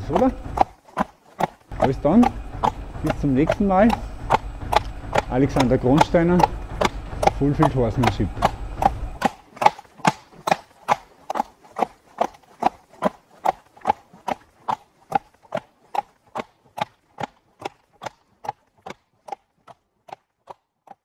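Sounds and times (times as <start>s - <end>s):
riding simulator knocking: 0.0s - 0.7s, 1.4s - 11.5s.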